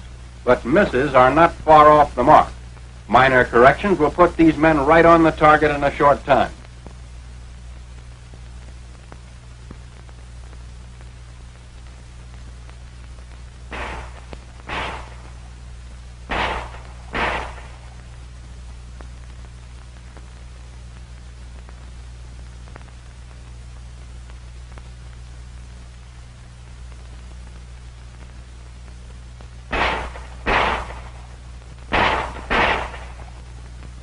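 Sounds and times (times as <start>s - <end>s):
film soundtrack hiss and hum: 0.0s - 34.0s
handgun shots: 13.7s - 15.3s, 16.3s - 17.8s, 29.7s - 31.2s, 31.9s - 33.3s.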